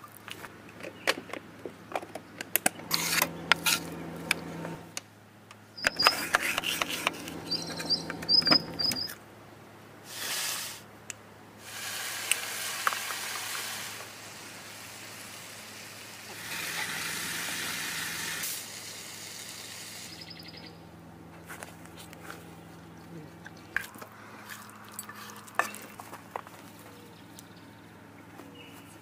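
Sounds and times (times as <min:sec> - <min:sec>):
birds chirping: 0:02.2 - 0:04.9, 0:05.7 - 0:09.2, 0:20.1 - 0:29.0.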